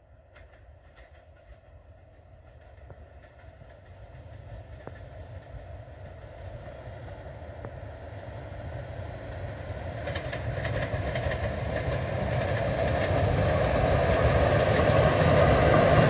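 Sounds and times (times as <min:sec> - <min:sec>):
train rumble and wheel noise: 0:00.0 - 0:16.0
faint rail clicks: 0:00.3 - 0:13.6.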